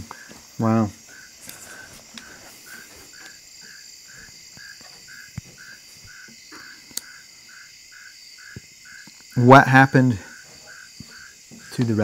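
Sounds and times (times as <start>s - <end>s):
high-pitched insect buzz: 0.0s - 9.6s
crickets chirping: 0.0s - 12.0s
sharp clicks: 6.9s - 7.2s.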